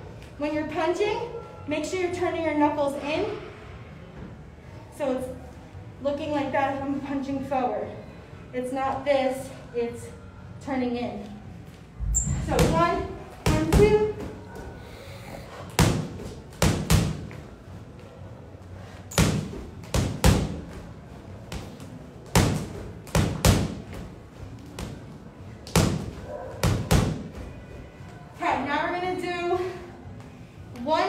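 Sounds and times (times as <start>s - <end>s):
boxing gloves punching heavy bag: 15.7s - 17.4s, 19.1s - 20.9s, 21.5s - 24.1s, 25.6s - 27.6s.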